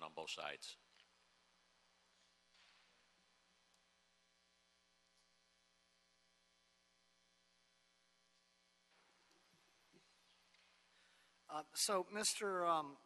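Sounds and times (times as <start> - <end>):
faint electrical mains hum: 0.0 - 13.0
faint hiss: 8.3 - 13.0.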